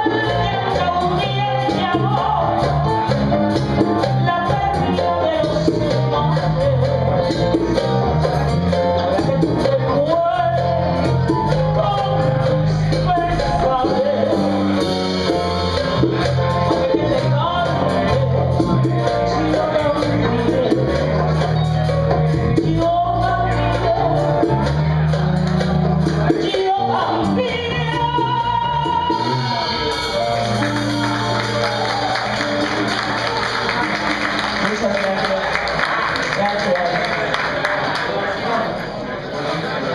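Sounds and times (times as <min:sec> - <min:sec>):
woman singing into a microphone: 0:00.0 - 0:02.9, 0:04.0 - 0:07.7, 0:09.0 - 0:14.8, 0:16.7 - 0:21.5, 0:22.5 - 0:24.7, 0:26.3 - 0:29.8
electric bass line: 0:00.0 - 0:34.8
live band playing: 0:00.0 - 0:39.9.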